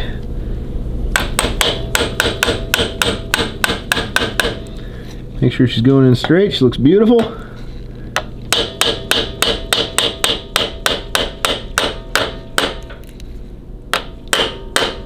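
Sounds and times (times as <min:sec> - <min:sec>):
hammer tapping metal: 0:01.1 - 0:04.7, 0:08.2 - 0:13.0, 0:13.9 - 0:15.0.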